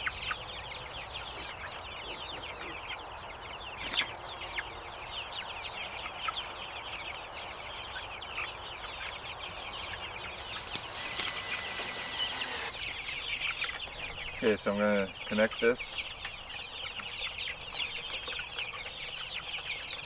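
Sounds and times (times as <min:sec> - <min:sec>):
chicks peeping: 0:00.0 - 0:20.0
insect chirping: 0:00.1 - 0:20.0
high insect drone: 0:08.7 - 0:13.1.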